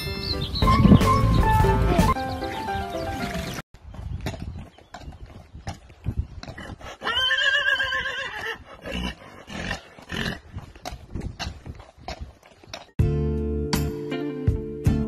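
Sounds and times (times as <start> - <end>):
hooves clopping on tarmac: 3.8 - 13.0
horse whinnying: 7.0 - 10.3.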